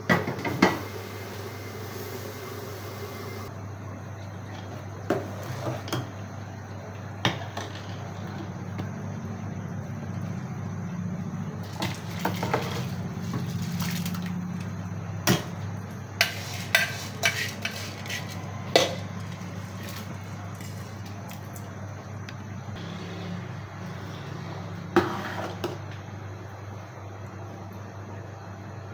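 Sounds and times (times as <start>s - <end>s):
water boiling: 0.0s - 3.5s
low hum: 0.6s - 4.2s.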